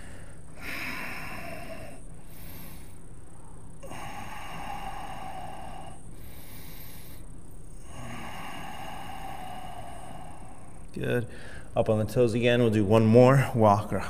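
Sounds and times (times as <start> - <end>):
person breathing through nose: 0.0 - 3.0, 3.8 - 11.7.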